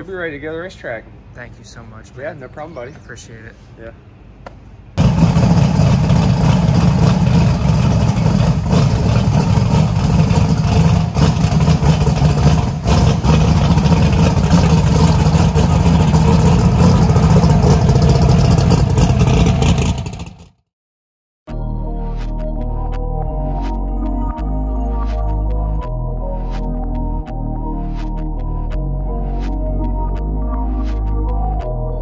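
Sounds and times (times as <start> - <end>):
race car engine rumbling: 5.0 - 20.5.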